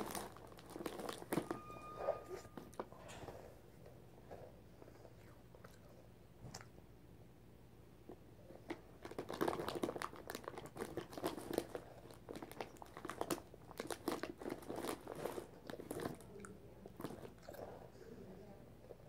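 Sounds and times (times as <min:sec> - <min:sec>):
crunchy candy being chewed: 0:00.0 - 0:01.6, 0:08.6 - 0:17.8.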